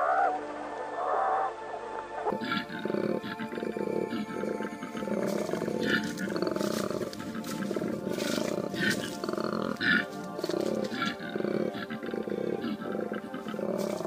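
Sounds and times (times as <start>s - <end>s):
background music: 0.0s - 14.0s
large animal calling: 2.2s - 14.0s.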